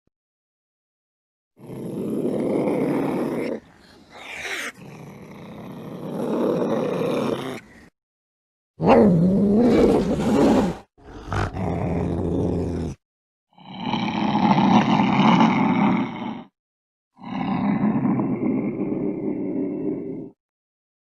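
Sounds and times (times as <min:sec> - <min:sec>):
cats yowling and growling: 0:02.9 - 0:05.7.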